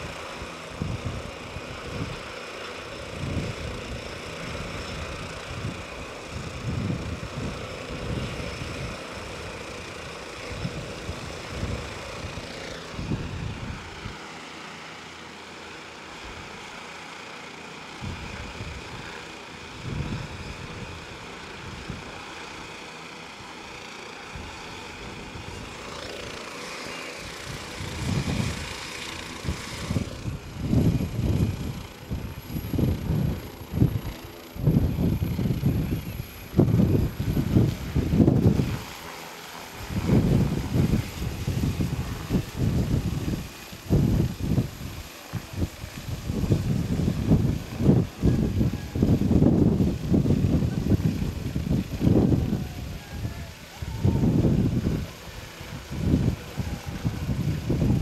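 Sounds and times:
helicopter turbine whine: 0.0s - 58.0s
rotor wash buffeting microphone: 0.0s - 58.0s.

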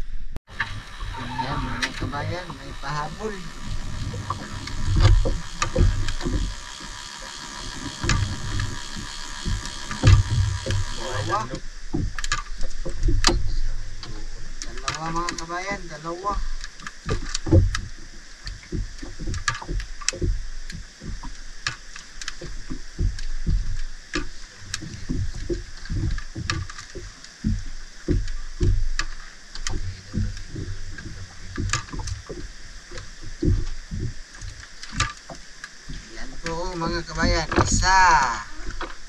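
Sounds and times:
water slapping boat hull: 0.5s - 39.0s
sharp knocks and clicks: 1.7s - 15.5s, 16.6s - 39.0s.

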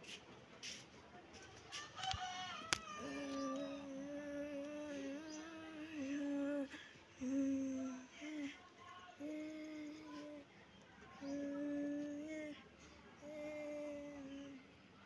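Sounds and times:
person humming: 3.0s - 8.6s, 9.2s - 10.5s, 11.2s - 12.6s, 13.2s - 14.7s.

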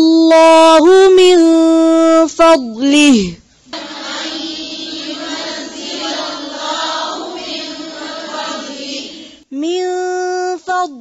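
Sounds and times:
woman chanting recitation: 3.0s - 11.0s.

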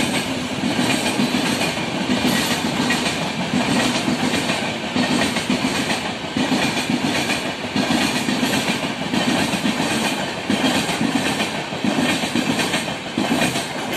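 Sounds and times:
train passing rumble: 0.0s - 13.9s
wheels clacking over rail joints: 0.0s - 13.9s.

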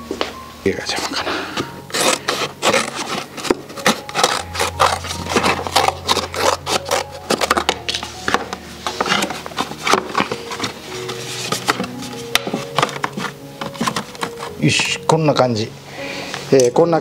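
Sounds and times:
background music: 0.0s - 17.0s
carton crinkling and scraping: 0.8s - 15.5s
scissors snipping paperboard: 1.6s - 14.6s.

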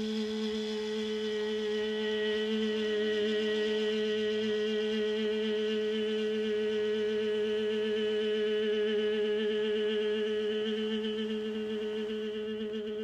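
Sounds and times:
meditative drone music: 0.0s - 13.0s.

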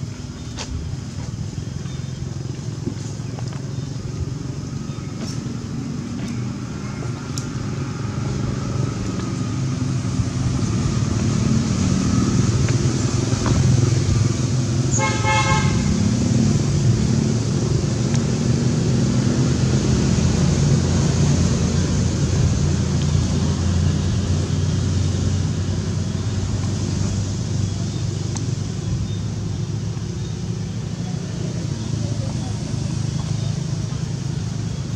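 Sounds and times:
vehicle engine running: 0.0s - 34.9s.

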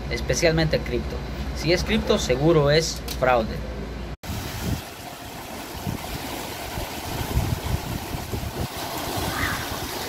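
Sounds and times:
outdoor hiss: 4.2s - 10.0s
wind buffeting microphone: 4.2s - 10.0s.

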